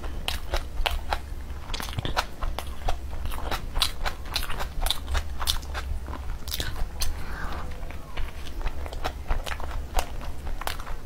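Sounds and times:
person chewing food: 0:00.0 - 0:11.0.

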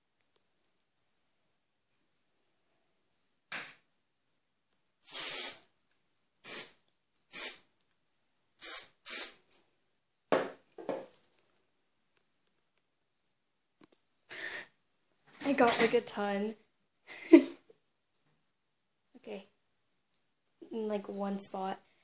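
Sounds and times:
aerosol can spraying: 0:05.0 - 0:05.7, 0:06.4 - 0:07.7, 0:08.6 - 0:09.4.

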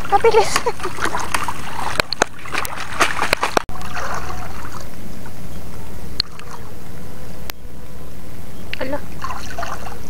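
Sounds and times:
wading and splashing in water: 0:00.0 - 0:07.0, 0:09.1 - 0:10.0.

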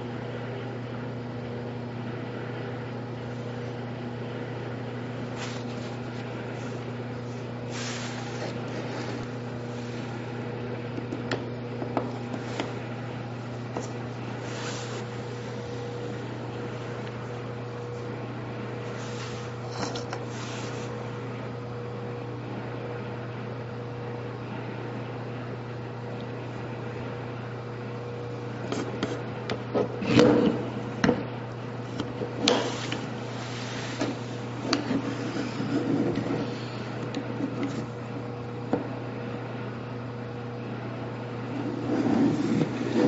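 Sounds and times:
electrical hum: 0:00.0 - 0:43.0.

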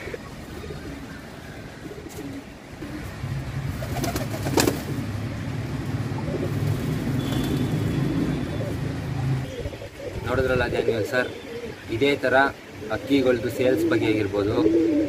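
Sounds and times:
pigeons cooing: 0:00.0 - 0:03.2, 0:06.0 - 0:06.9, 0:08.0 - 0:15.0.

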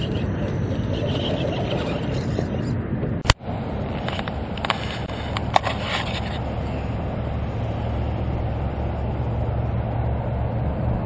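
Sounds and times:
toy truck motor rumble: 0:00.0 - 0:03.0, 0:04.0 - 0:09.2.

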